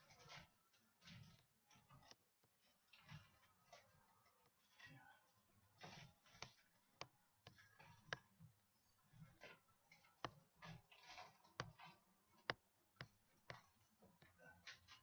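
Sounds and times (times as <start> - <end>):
mouse scraping on pad: 9.2 - 13.8
computer mouse clicks: 10.2 - 15.0.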